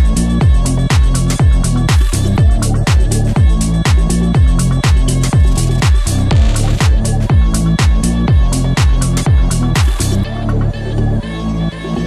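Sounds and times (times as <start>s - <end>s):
electronic music: 6.3s - 8.4s.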